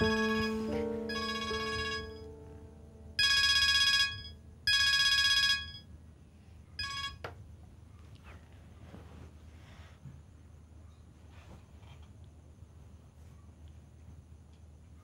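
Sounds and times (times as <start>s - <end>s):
phone ringing electronic trill: 0.0s - 2.4s, 3.2s - 5.9s, 6.8s - 7.2s.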